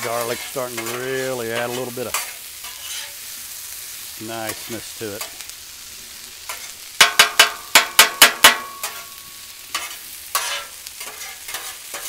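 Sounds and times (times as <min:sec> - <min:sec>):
metal spatula clanking on griddle: 0:00.0 - 0:03.2, 0:06.5 - 0:12.0
food sizzling: 0:00.0 - 0:12.0.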